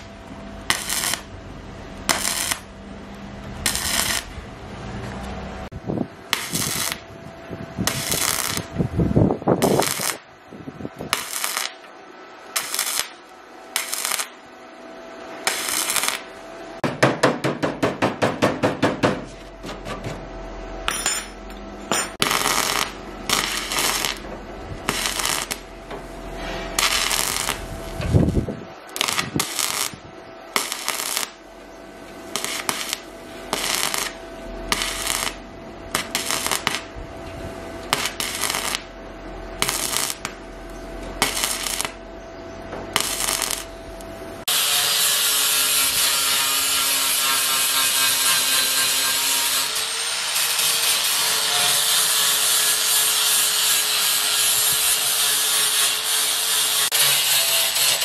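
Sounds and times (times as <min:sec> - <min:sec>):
welding arc crackling: 0:00.0 - 0:01.3, 0:01.9 - 0:02.8, 0:03.4 - 0:04.4, 0:06.3 - 0:07.1, 0:07.8 - 0:08.8, 0:09.6 - 0:10.2, 0:11.1 - 0:11.8, 0:12.5 - 0:14.4, 0:15.4 - 0:16.3, 0:21.9 - 0:25.8, 0:26.8 - 0:31.4, 0:32.2 - 0:37.0, 0:37.9 - 0:38.9, 0:39.6 - 0:42.0, 0:42.9 - 0:43.7, 0:44.4 - 0:58.0.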